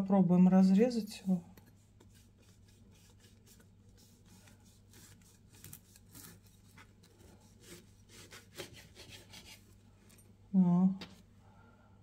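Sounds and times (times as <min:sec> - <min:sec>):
low steady hum: 0:00.0 - 0:12.0
knife scraping bread: 0:01.7 - 0:09.8.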